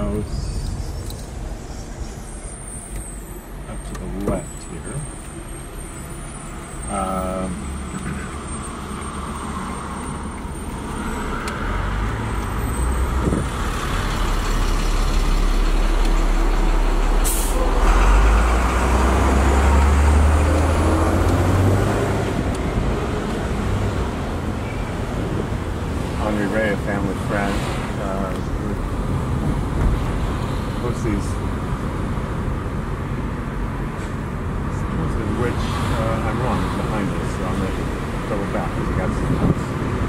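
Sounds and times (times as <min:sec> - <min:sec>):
diesel engine rumble: 0:00.0 - 0:40.0
brief squeal: 0:00.3 - 0:07.0.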